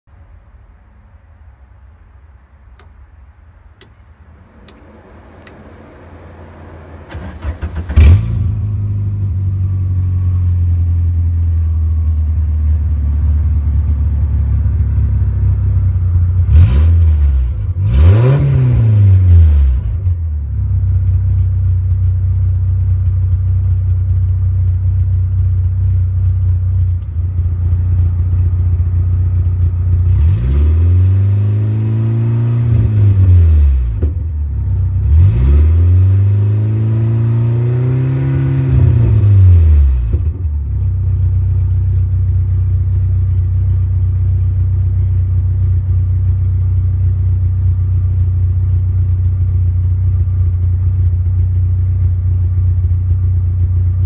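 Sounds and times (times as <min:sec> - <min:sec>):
car engine idling and revving: 0:02.6 - 0:54.0
car engine cranking and starting: 0:02.7 - 0:09.9.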